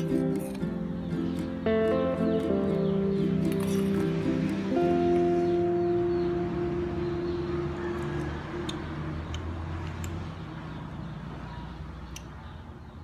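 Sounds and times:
background music: 0.0s - 8.6s.

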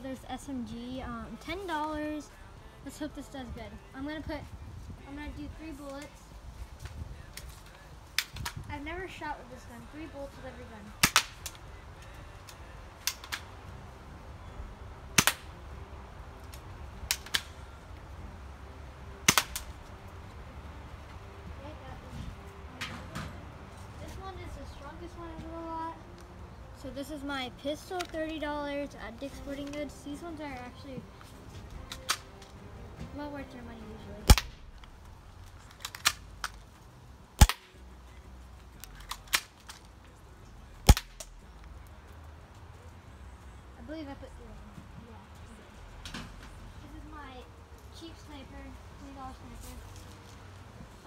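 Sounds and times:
airsoft gun shots snapping: 8.1s - 8.6s, 11.0s - 11.6s, 13.0s - 13.5s, 15.2s - 15.5s, 17.0s - 17.6s, 19.2s - 19.8s, 31.9s - 32.3s, 34.2s - 34.9s, 37.4s - 37.8s, 39.0s - 39.7s, 40.8s - 41.3s.

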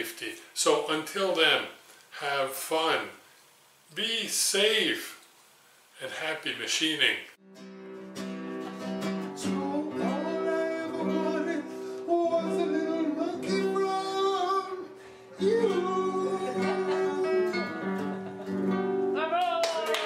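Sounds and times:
acoustic guitar: 7.4s - 19.8s
man singing: 9.4s - 17.9s, 19.2s - 19.9s.

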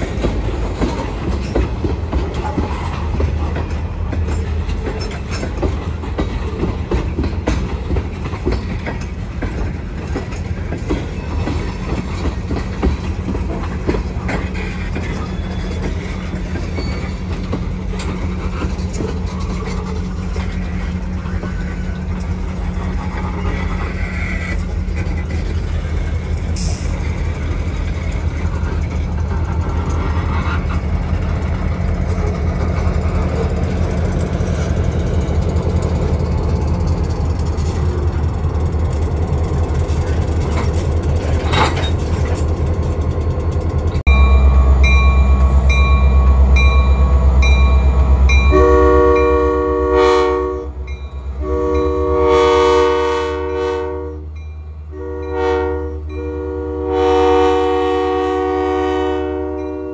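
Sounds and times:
diesel locomotive running: 0.0s - 59.9s
bell ringing: 44.1s - 49.4s
locomotive horn: 44.4s - 59.9s.

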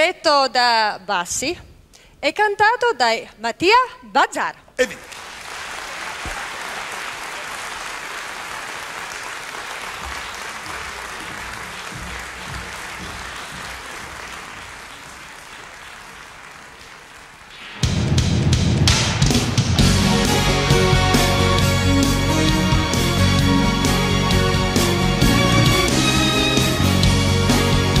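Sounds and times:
audience applauding: 5.0s - 17.6s.

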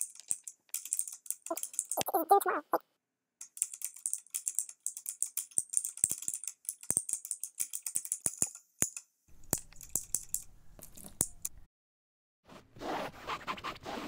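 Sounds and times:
typing on computer keyboard: 0.0s - 2.1s, 3.4s - 8.5s.

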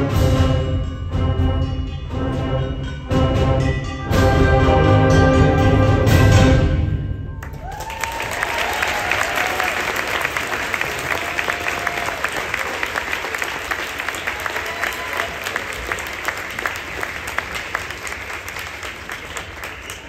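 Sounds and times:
audience applauding: 7.4s - 20.0s
voices cheering: 7.6s - 16.7s.

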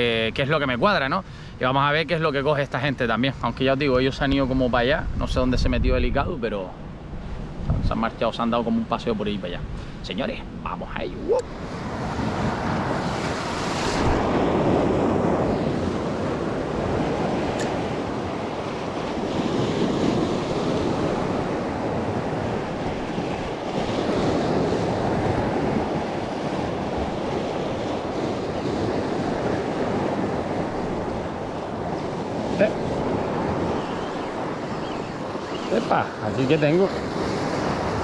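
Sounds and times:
wind buffeting microphone: 3.8s - 38.0s
surf washing over rocks: 7.9s - 38.0s
brief click: 17.6s - 17.8s.

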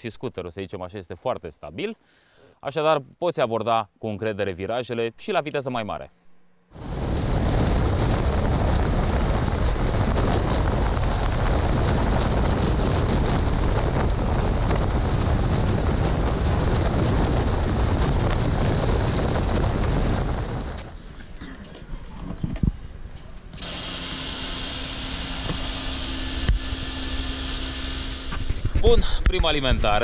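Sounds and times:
wind rushing over microphone: 6.8s - 30.0s.

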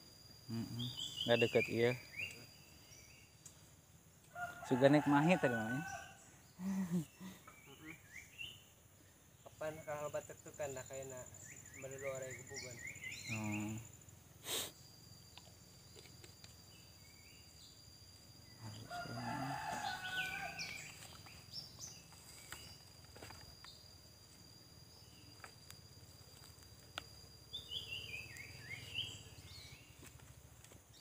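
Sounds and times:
high insect whine: 0.0s - 31.0s
rooster crowing: 4.3s - 6.3s, 18.6s - 20.9s.

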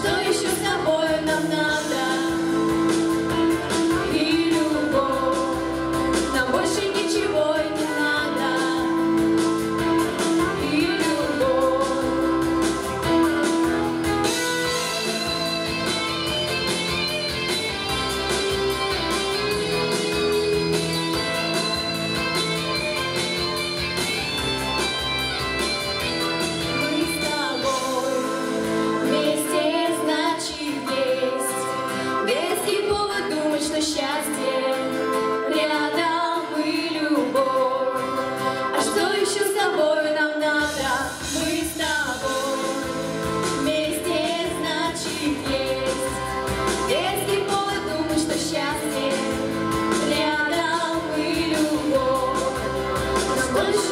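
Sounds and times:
girls singing pop duet: 0.0s - 13.2s, 26.7s - 53.9s
instrumental accompaniment with guitar: 0.0s - 53.9s.

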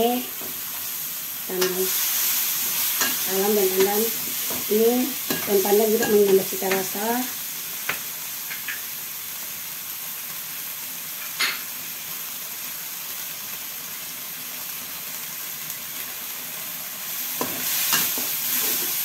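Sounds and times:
paste sizzling in a wok: 0.0s - 19.0s
metal spatula scraping a wok: 17.4s - 19.0s.

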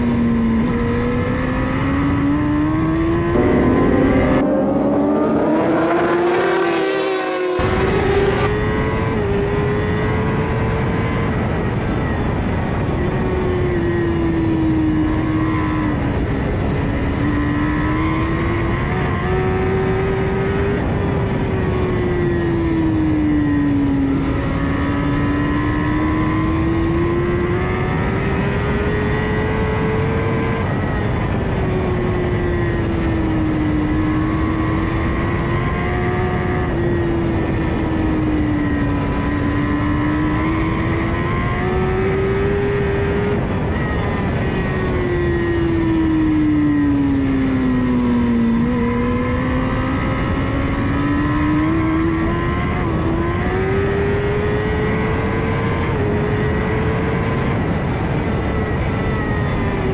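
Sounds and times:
motorcycle engine at racing revs: 0.0s - 59.9s
heavy wind rush: 2.5s - 8.8s.

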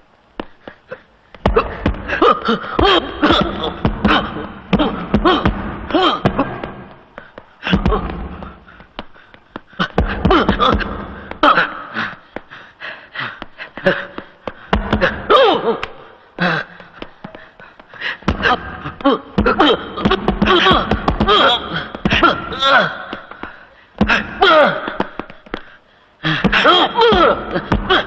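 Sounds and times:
men grunting and gasping: 0.4s - 28.0s
punches landing: 1.3s - 12.6s, 13.4s - 28.0s.

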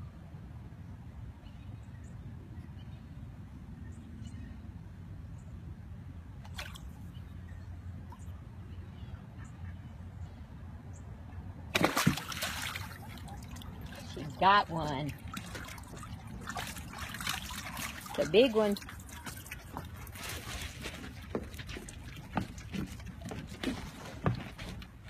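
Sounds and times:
dog splashing into water: 11.7s - 14.4s, 15.0s - 23.9s.

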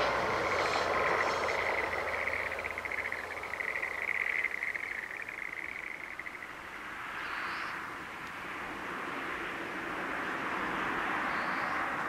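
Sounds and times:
animal pulsing trill: 0.0s - 6.5s.

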